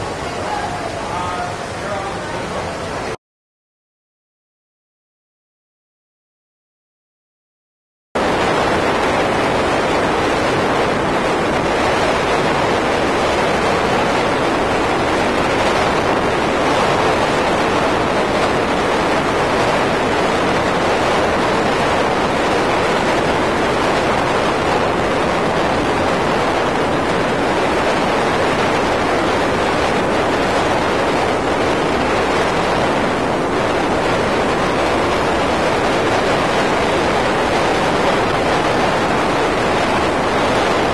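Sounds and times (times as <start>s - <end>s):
wind and road noise: 8.2s - 40.9s.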